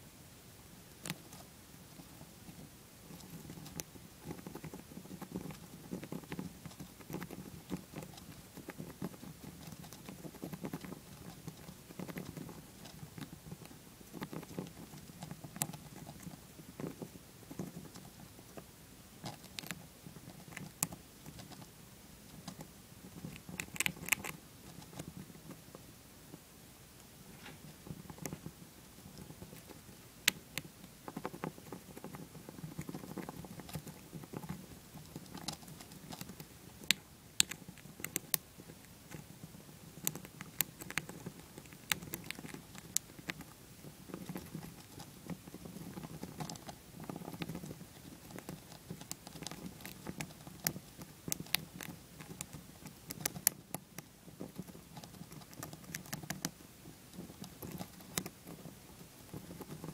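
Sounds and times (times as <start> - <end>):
hamster gnawing a peanut: 0.4 - 59.9
soft low rustle: 24.0 - 36.3.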